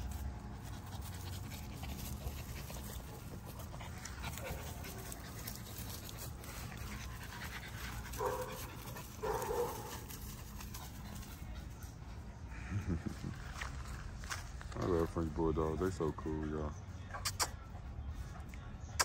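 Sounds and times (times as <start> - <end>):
dog panting: 0.6 - 11.8.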